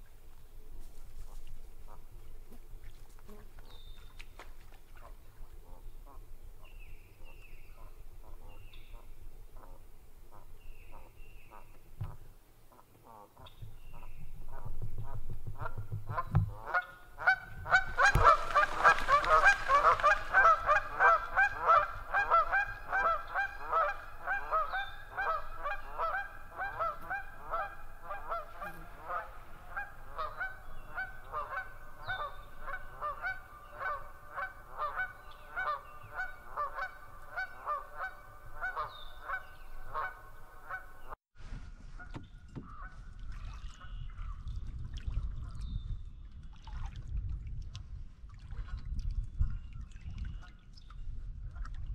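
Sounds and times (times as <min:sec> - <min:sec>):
geese honking: 0:16.1 - 0:41.2.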